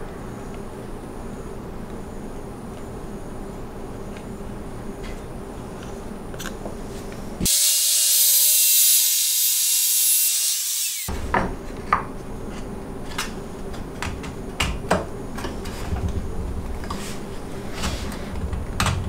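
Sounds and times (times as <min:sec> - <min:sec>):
trim router running: 0:07.5 - 0:11.1.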